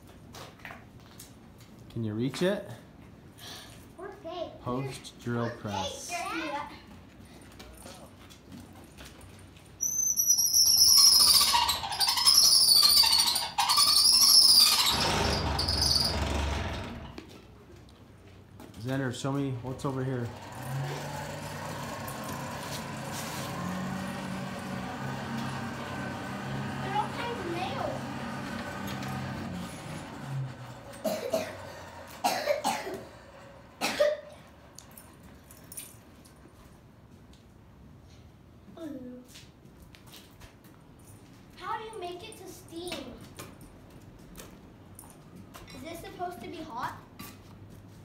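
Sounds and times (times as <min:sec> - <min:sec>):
drill press squealing: 0:09.8 - 0:17.1, 0:20.3 - 0:32.2
person coughing: 0:31.0 - 0:31.6, 0:32.2 - 0:33.0.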